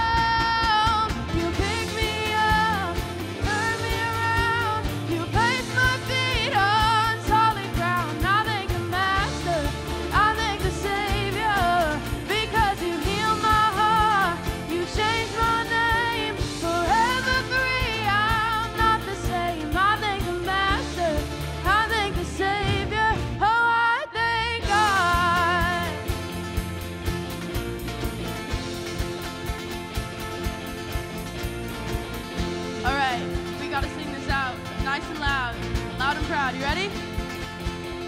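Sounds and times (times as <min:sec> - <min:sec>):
steady drum beat: 0:00.0 - 0:23.6, 0:24.6 - 0:38.0
singer with vibrato: 0:00.0 - 0:26.1
bass: 0:00.0 - 0:38.0.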